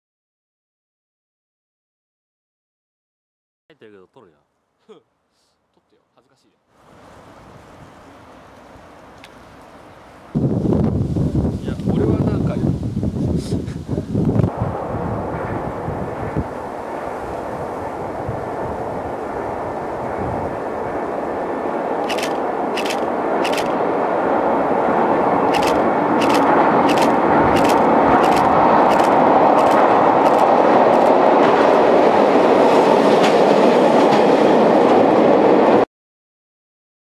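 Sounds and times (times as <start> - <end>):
railcar rumbling over bridge: 14.5 - 35.8
wheels clacking over rail joints: 22.0 - 23.9, 25.5 - 31.8.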